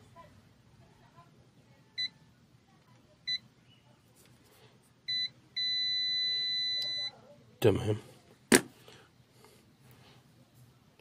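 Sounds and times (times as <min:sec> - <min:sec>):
multimeter continuity beeps: 0:02.0 - 0:02.2, 0:03.2 - 0:03.5, 0:05.0 - 0:07.2.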